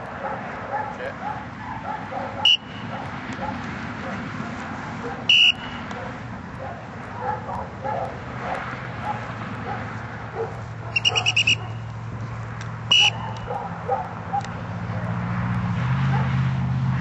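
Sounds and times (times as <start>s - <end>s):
short whistle blast: 2.4s - 2.8s, 5.3s - 5.8s, 11.0s - 11.8s, 12.9s - 13.3s
short whistle pips: 2.4s - 2.8s, 5.3s - 5.8s, 11.0s - 11.9s, 12.9s - 13.5s.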